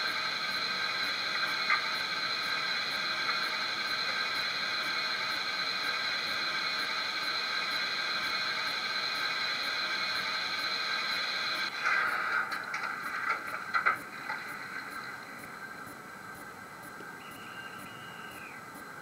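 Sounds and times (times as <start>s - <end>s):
steam hiss from small speaker: 0.0s - 12.3s.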